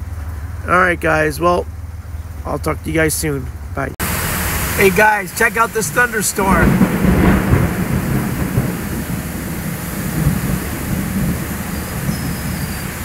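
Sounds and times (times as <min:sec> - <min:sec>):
heavy rain on car roof: 0:04.0 - 0:13.0
low thunder rumble: 0:04.0 - 0:13.0.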